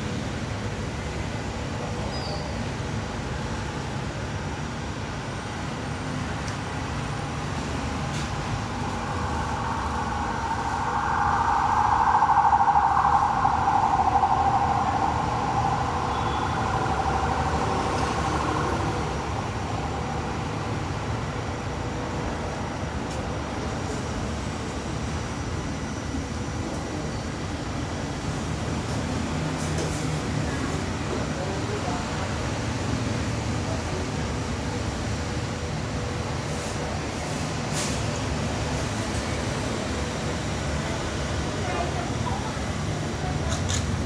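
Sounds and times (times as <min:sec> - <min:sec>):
humming sound: 0:08.1 - 0:21.3.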